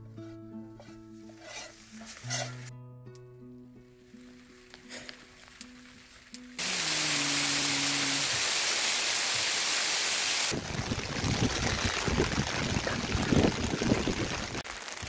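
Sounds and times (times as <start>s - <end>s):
snow and sleet falling: 4.0s - 15.0s
wind on microphone: 10.5s - 14.6s.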